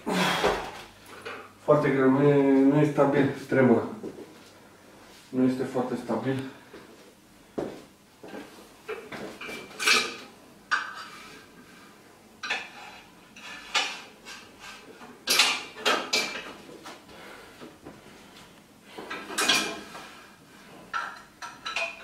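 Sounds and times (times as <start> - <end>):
metal stand clanking and rattling: 19.1 - 19.9.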